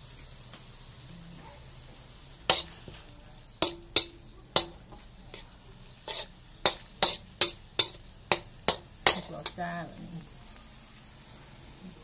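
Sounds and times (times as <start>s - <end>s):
meat sizzling: 0.0s - 12.0s
metal spoon scraping wok: 2.4s - 10.2s.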